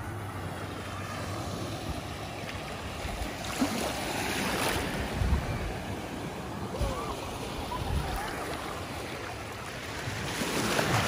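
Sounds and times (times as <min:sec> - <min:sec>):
waves washing onto beach: 0:00.0 - 0:11.0
wind buffeting microphone: 0:04.7 - 0:08.5.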